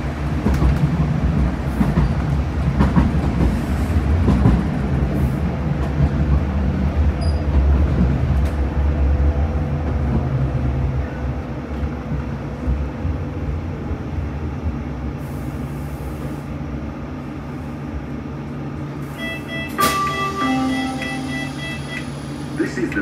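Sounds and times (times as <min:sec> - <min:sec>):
tram rumbling on rails: 0:00.0 - 0:23.0.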